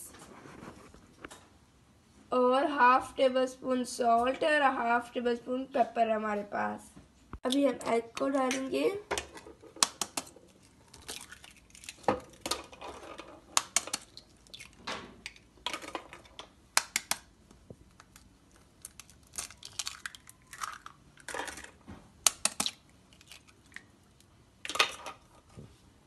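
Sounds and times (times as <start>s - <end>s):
eggshells cracking: 9.7s - 12.8s, 13.5s - 15.9s, 16.8s - 25.0s.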